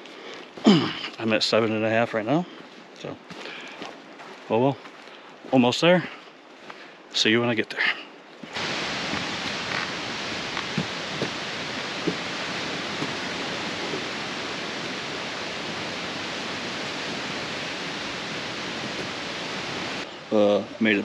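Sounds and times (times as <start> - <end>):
steady rushing noise: 8.5 - 21.0.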